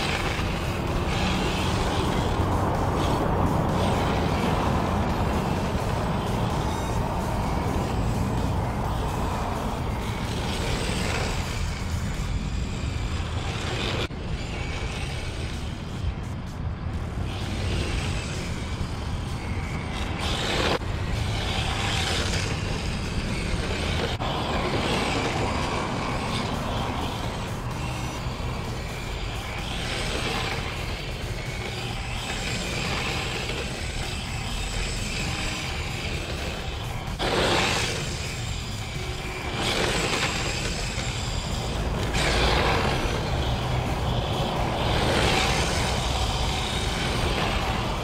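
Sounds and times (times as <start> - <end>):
electric motor whine: 0.0 - 48.0
tyres scrubbing on asphalt: 0.0 - 48.0.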